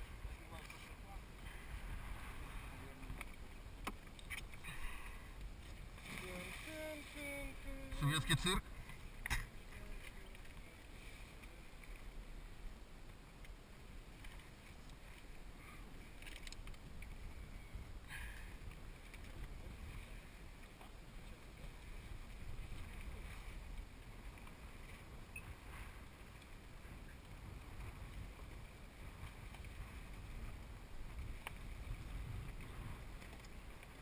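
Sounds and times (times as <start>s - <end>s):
wind and sea noise: 0.0s - 34.0s
scuba gear clicks and rustles: 3.1s - 4.6s, 16.1s - 17.2s, 18.6s - 19.6s, 32.6s - 34.0s.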